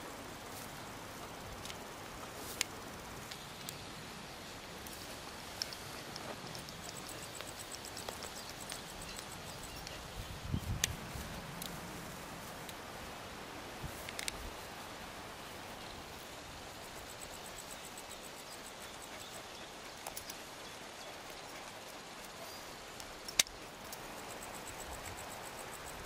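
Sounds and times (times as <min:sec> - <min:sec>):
steady outdoor hiss: 0:00.0 - 0:26.0
faint high ticking: 0:01.2 - 0:11.8.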